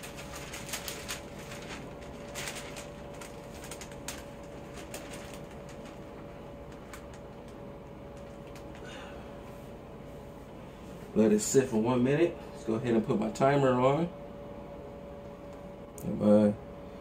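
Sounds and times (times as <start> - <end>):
plastic film crinkling: 0.0 - 9.0
faint steady hum: 0.0 - 17.0.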